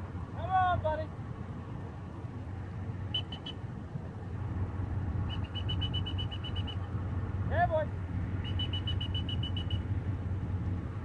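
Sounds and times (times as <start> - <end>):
steady low rumble: 0.0 - 11.0
high whistle pips: 3.1 - 3.6, 5.3 - 6.9, 8.4 - 9.9.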